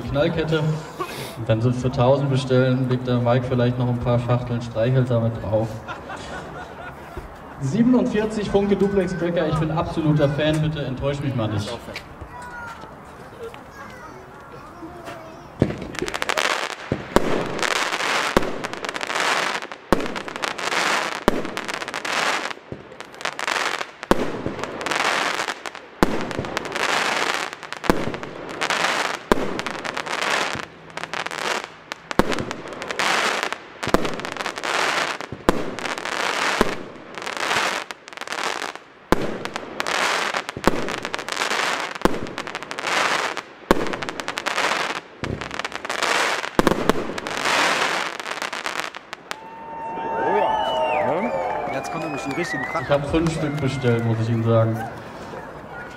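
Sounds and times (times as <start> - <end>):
crackling firework stars: 11.7 - 55.8
firework shots launching: 15.6 - 49.2.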